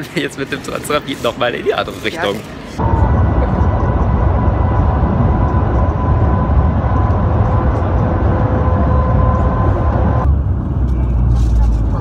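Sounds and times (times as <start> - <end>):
train cabin rush and rumble: 0.0 - 12.0
thin steady whine: 2.8 - 11.4
lower whine: 2.8 - 12.0.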